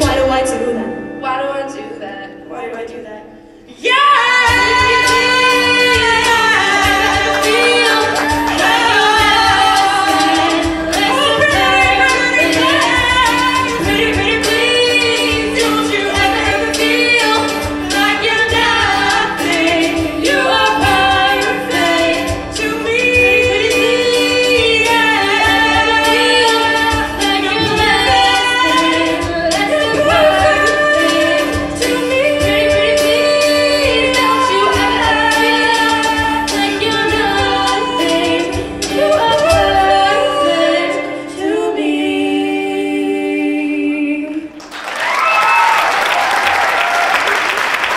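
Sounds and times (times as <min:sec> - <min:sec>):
choir singing in harmony: 0:03.8 - 0:44.6
steady beat: 0:04.5 - 0:40.1.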